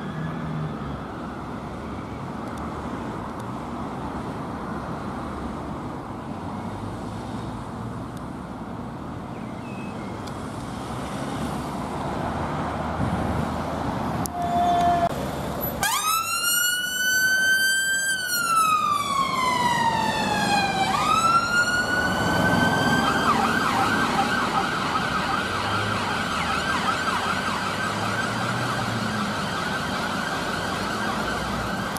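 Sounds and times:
road traffic rumble: 0.0s - 31.9s
ambulance siren wailing and yelping: 15.8s - 31.9s.

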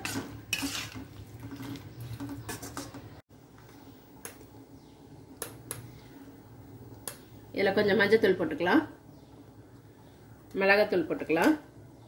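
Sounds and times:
ladle stirring gravy: 0.0s - 3.2s.

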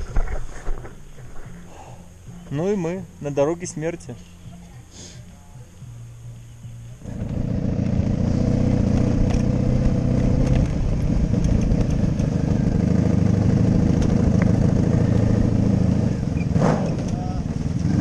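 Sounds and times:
motorcycle engine running: 6.9s - 18.0s.

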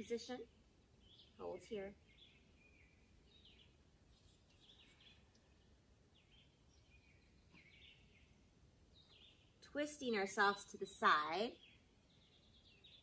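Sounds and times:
faint songbird chirping: 0.0s - 13.0s
low outdoor background hush: 0.0s - 13.0s.

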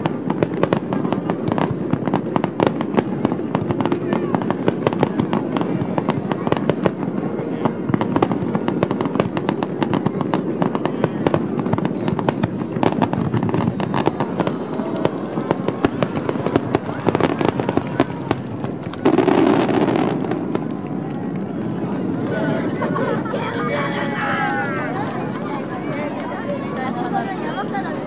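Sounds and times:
fireworks crackling and popping: 0.0s - 28.0s.

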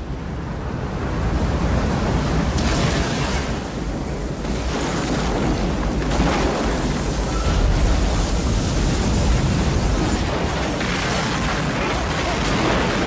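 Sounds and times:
tsunami water crashing and rumbling: 2.3s - 13.0s.

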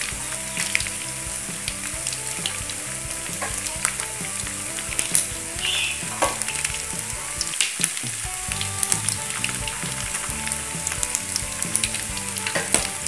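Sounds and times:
chicken deep-frying in oil: 0.0s - 13.0s.

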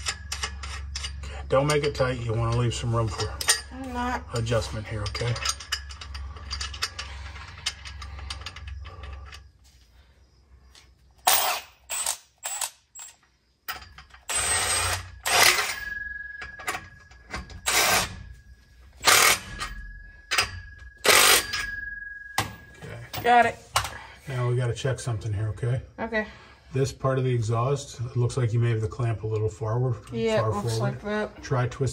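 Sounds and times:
ratchet wrench clicking: 19.0s - 20.4s, 21.0s - 21.6s.

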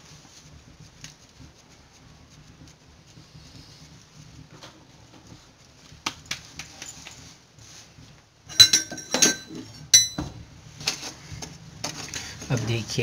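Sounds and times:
hands patting dough: 0.0s - 9.3s
glass bangles clinking: 8.5s - 10.3s
ringing metallic clinks: 8.5s - 10.3s.

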